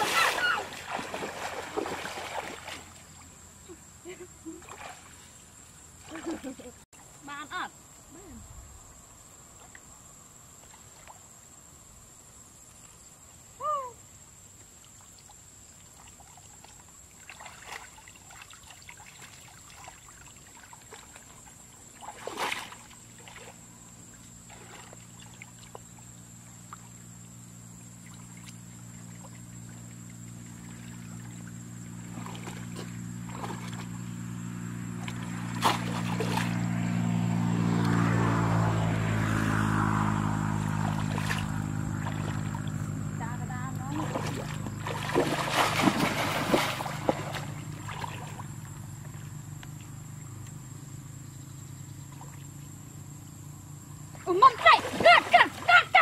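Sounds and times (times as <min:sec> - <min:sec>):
water splashing and trickling: 0:00.0 - 0:11.8, 0:14.3 - 0:50.8, 0:52.0 - 0:53.2, 0:54.0 - 0:56.0
motor engine hum: 0:20.9 - 0:56.0.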